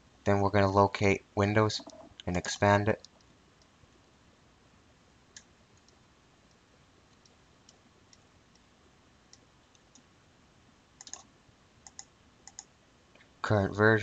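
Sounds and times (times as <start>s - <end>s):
computer mouse clicks: 1.8s - 2.3s, 5.3s - 8.7s, 9.3s - 10.1s, 11.0s - 12.7s.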